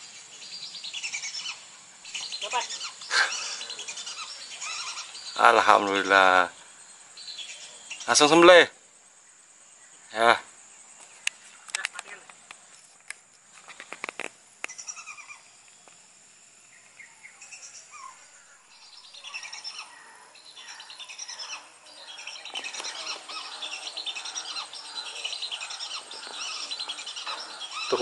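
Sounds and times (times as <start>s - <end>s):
birds chirping: 0.0s - 12.8s, 13.6s - 16.0s, 16.6s - 28.0s
clicks and rustles: 11.2s - 14.7s.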